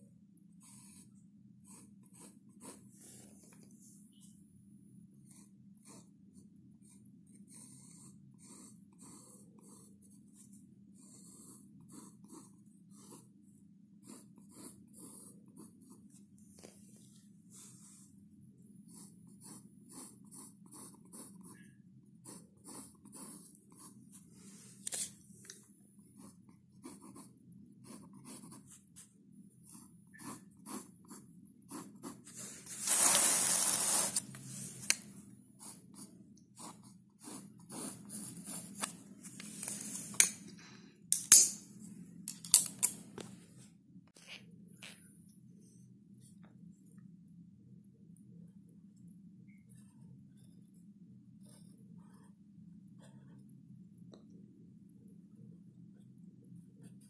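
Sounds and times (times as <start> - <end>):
low steady hum: 0.0 - 57.0
pen scratching on paper: 0.6 - 3.5, 5.2 - 13.4, 14.0 - 16.2, 18.8 - 25.1, 26.1 - 35.0, 35.6 - 40.1, 51.4 - 53.4.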